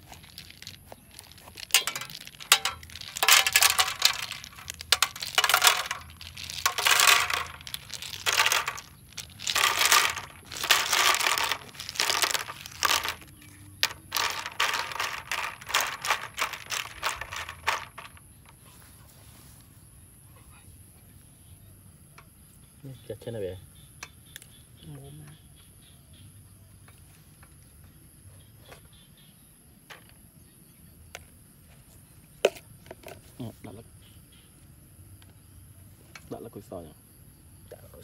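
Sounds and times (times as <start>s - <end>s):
snail shells clattering in a pan: 0.0s - 18.5s.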